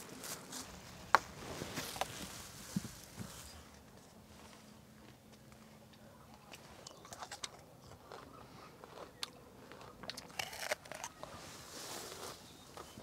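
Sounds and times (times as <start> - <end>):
crunching and chewing fruit: 5.0 - 13.0.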